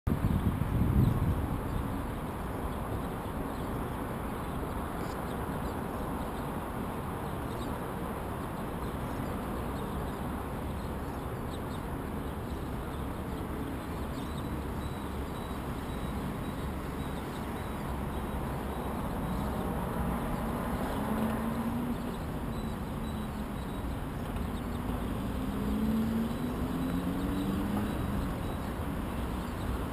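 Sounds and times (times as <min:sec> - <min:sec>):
city traffic hum: 0:00.1 - 0:29.9
vehicle engine accelerating: 0:24.2 - 0:28.7.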